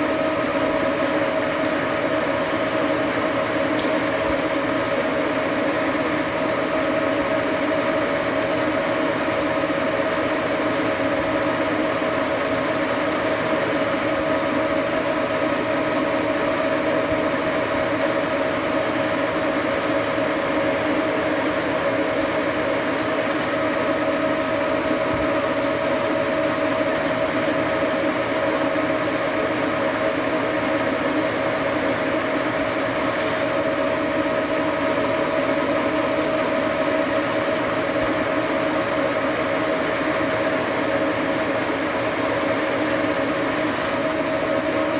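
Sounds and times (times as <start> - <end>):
lathe cutting metal whine: 0.0 - 44.9
thin high tone: 1.2 - 7.1, 7.8 - 11.2, 17.5 - 23.6, 26.9 - 33.6, 37.2 - 44.1.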